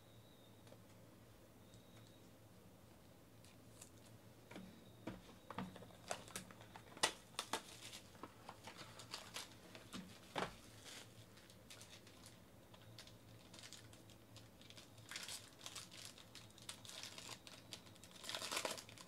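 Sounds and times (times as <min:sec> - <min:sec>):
plastic wrapping crackling: 0:05.7 - 0:19.0.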